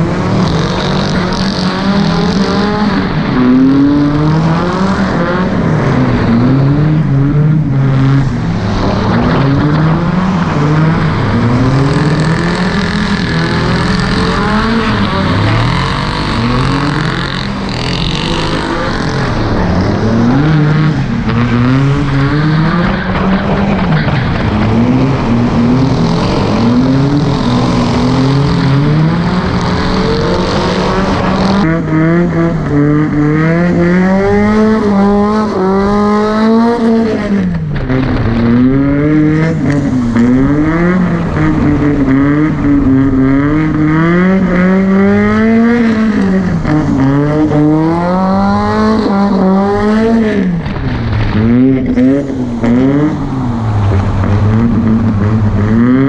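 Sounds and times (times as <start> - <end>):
car engine revving: 0.0 - 56.0.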